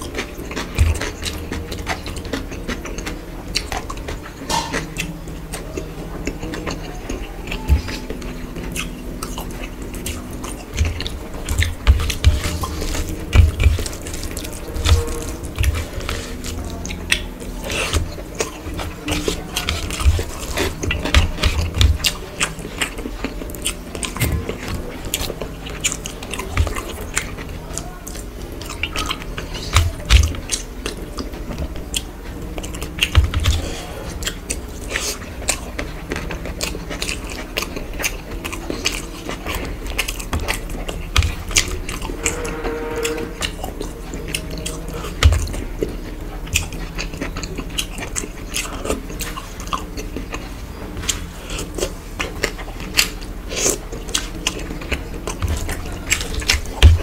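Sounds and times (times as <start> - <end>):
fingers mixing rice on plate: 0.0 - 42.3
chewing and mouth smacking: 0.0 - 57.0.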